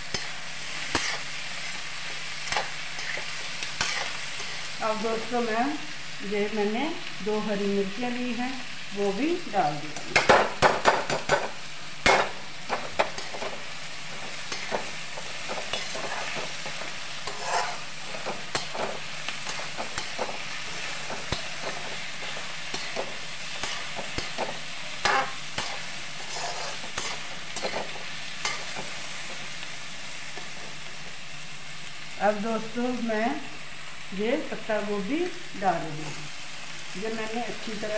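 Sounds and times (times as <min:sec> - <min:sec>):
metal spatula scraping a pan: 0:00.0 - 0:04.8, 0:12.1 - 0:29.5
vegetables sizzling in hot oil: 0:00.0 - 0:37.9.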